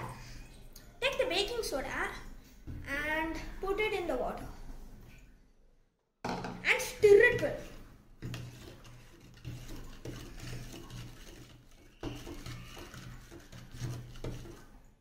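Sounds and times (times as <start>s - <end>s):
spoon swishing and scraping: 6.8s - 15.0s.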